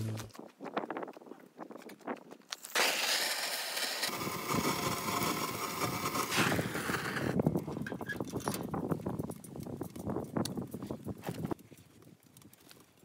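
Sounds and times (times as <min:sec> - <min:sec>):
fire-starting gun rushing hiss: 0:02.7 - 0:04.8, 0:05.6 - 0:07.4.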